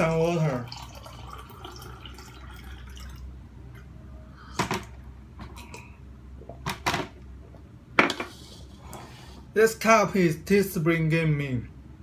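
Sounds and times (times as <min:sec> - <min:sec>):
water pouring into a mug: 0:00.0 - 0:03.3.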